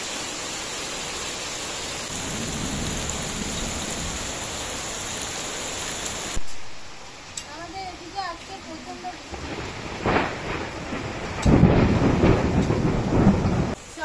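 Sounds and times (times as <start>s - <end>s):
heavy rain: 0.0s - 14.0s
thunder rumble: 2.1s - 6.5s, 9.3s - 13.8s.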